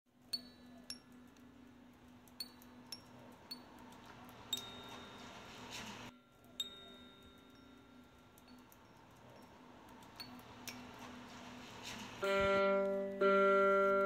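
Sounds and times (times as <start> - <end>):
water drops ticking: 0.2 - 4.9, 6.2 - 11.0.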